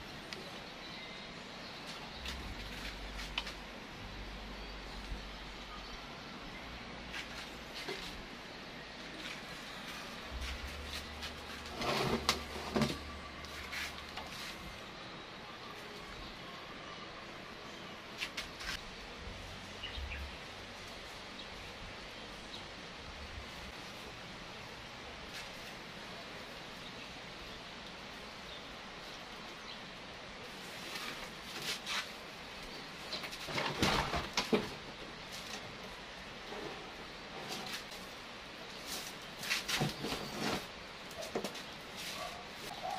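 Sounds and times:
pot scraping and knocking: 11.5 - 13.2.

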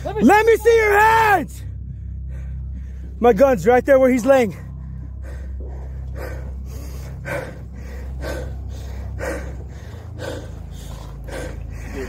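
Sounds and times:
steady low hum: 0.0 - 12.0
person breathing hard: 1.6 - 3.2, 4.6 - 12.0.

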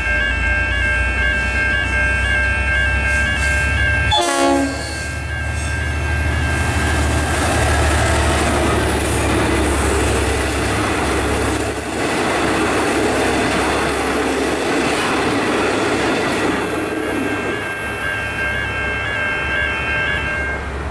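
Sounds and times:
chord of high tones: 0.0 - 6.2
diesel locomotive engine drone: 0.0 - 20.9.

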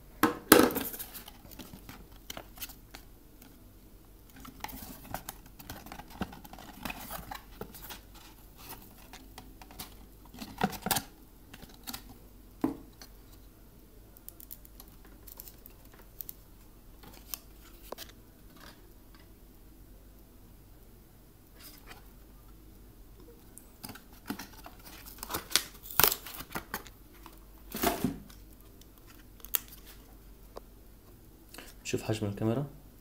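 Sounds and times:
packaging clicks and rustles: 4.3 - 12.2, 23.8 - 30.0.

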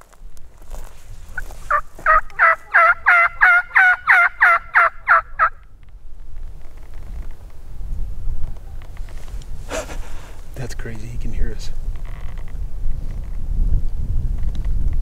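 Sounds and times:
low wind rumble: 0.0 - 15.0
turkey yelps: 1.4 - 5.6.

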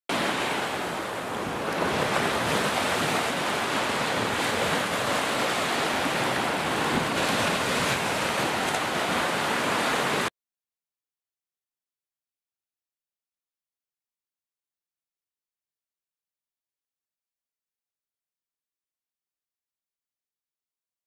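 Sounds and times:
waves washing onto beach: 0.1 - 10.3.

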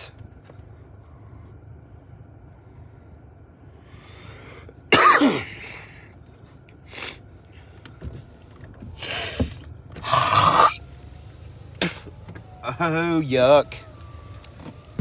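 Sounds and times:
low steady hum: 0.0 - 15.0
man coughing: 4.9 - 5.9, 11.8 - 12.1.

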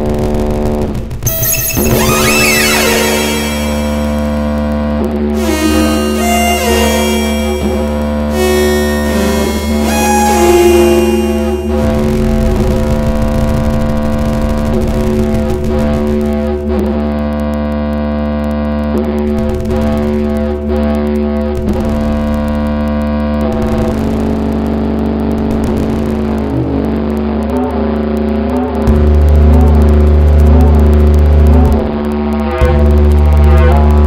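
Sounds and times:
layered droning tones: 1.3 - 4.7, 5.4 - 13.0.

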